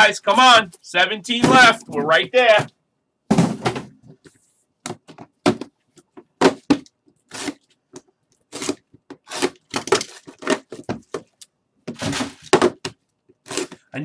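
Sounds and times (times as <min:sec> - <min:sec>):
boxes knocking on table: 0:01.4 - 0:02.3, 0:03.3 - 0:04.0, 0:04.9 - 0:06.9, 0:11.9 - 0:13.0.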